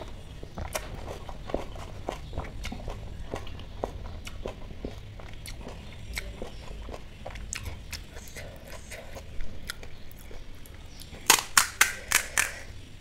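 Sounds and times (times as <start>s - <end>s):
chewing with mouth clicks: 0.0s - 12.7s
crisp shell cracking: 11.1s - 12.7s.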